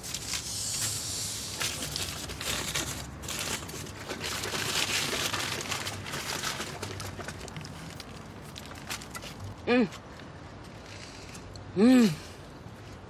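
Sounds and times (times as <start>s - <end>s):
paper wrapper crinkling: 0.0s - 9.6s.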